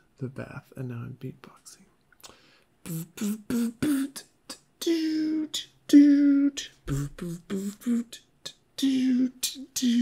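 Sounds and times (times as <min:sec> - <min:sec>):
man beatboxing: 0:02.8 - 0:10.0.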